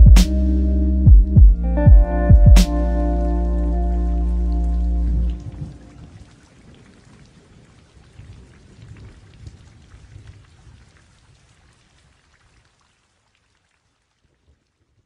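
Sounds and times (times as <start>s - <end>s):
rain falling: 1.5s - 15.0s.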